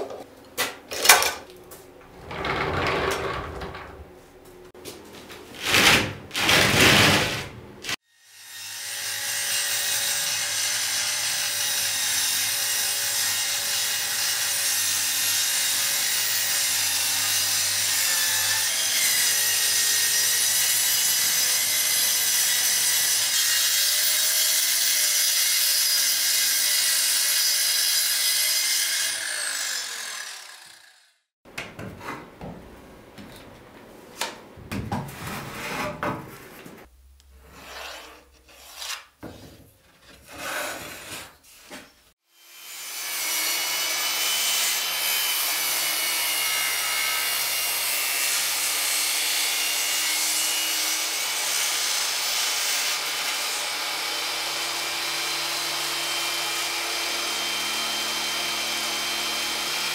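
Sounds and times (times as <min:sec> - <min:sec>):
circular saw cutting plywood: 0:07.9 - 0:31.3, 0:40.2 - 0:59.9
plywood scraping and knocking: 0:38.6 - 0:42.0.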